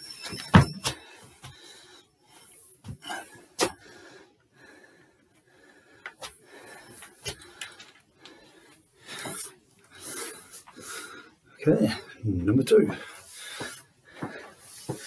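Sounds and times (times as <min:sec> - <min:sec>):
hard wheezy breathing: 0:00.9 - 0:12.2, 0:13.0 - 0:15.0
footsteps on wooden stairs: 0:12.9 - 0:15.0.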